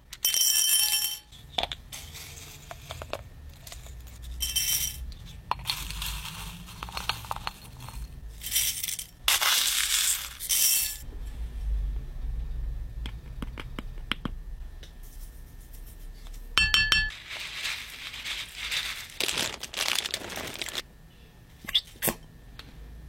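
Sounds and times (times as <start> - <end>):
beads pouring into a bowl: 5.6 - 11.0, 17.1 - 20.8.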